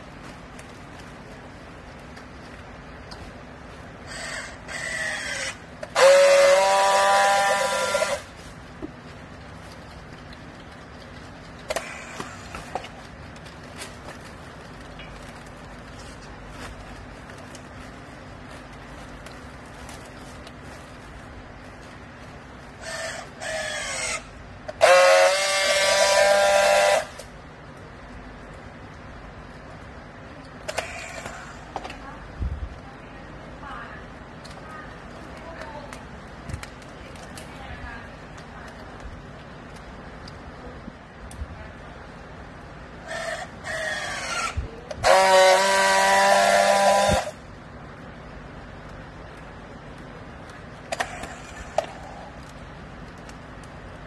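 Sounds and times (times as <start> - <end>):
strapping tool motor whine: 4.1 - 8.3, 22.8 - 27.3, 43.1 - 47.4
strapping tool welding buzz: 4.1 - 8.4, 11.7 - 13.0, 22.8 - 27.3, 30.6 - 31.8, 43.0 - 47.4.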